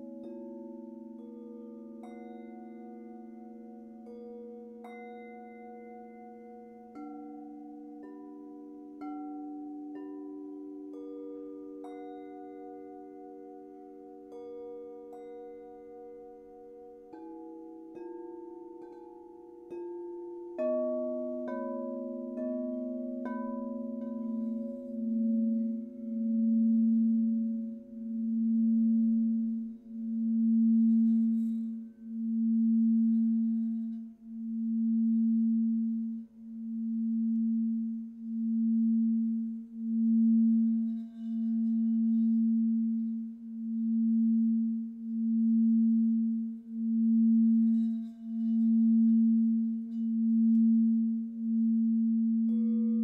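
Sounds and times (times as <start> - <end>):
rubbed singing bowl humming: 0.0 - 53.0.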